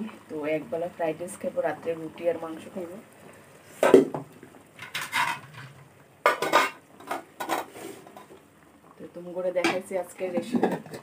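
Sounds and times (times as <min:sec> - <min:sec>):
metal pots and plates clanking: 0:04.8 - 0:08.3.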